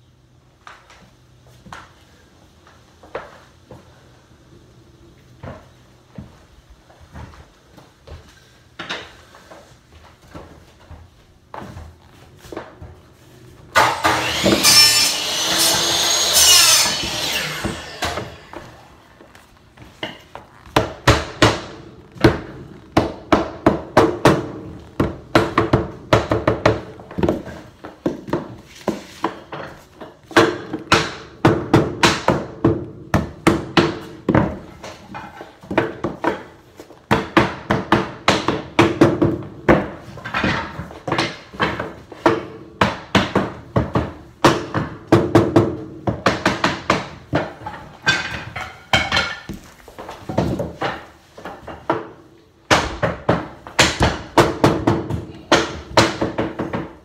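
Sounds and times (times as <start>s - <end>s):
mallet knocking floorboards: 20.0s - 29.7s, 37.1s - 57.0s.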